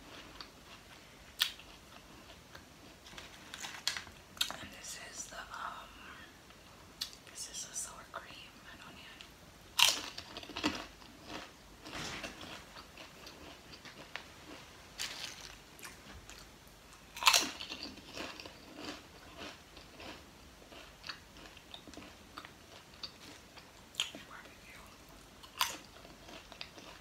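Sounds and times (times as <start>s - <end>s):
potato chips crunching: 9.8s - 24.8s, 25.4s - 27.0s.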